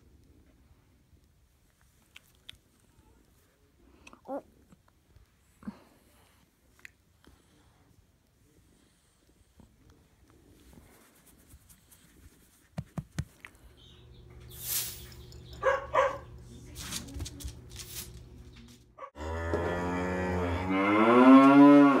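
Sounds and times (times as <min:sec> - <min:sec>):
short hissing sounds: 0:14.5 - 0:15.2
cow mooing: 0:19.2 - 0:22.0.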